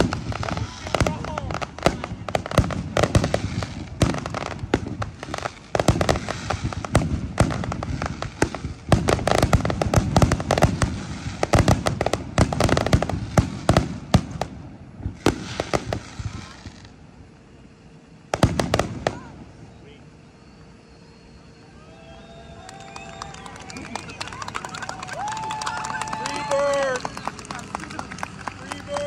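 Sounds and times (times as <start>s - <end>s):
fireworks bangs and pops: 0.0s - 17.0s, 18.3s - 19.3s, 22.8s - 29.0s
fireworks crackling: 0.0s - 29.0s.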